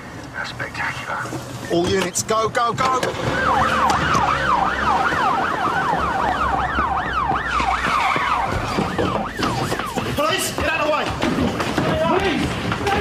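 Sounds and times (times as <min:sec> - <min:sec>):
police siren yelping: 0:02.9 - 0:10.6.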